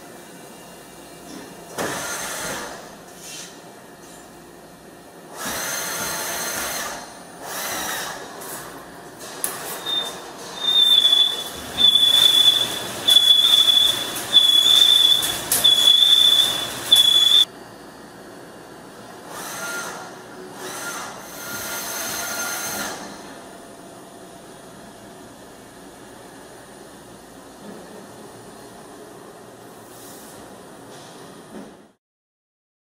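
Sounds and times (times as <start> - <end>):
milling cutter machining metal: 9.8 - 17.4
high-pitched squeal: 9.8 - 17.5.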